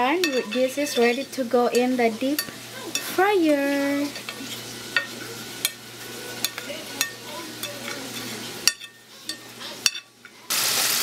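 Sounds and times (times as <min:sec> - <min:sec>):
oil sizzling in a fryer: 0:00.0 - 0:11.0
sharp oil crackle: 0:10.5 - 0:11.0.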